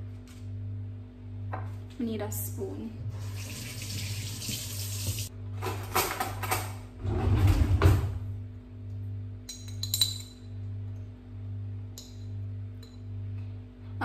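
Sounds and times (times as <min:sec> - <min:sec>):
tap water running: 0:03.1 - 0:05.3.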